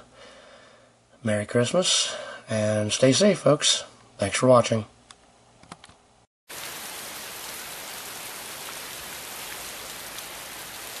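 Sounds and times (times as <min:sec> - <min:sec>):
steady hiss: 0:06.5 - 0:11.0.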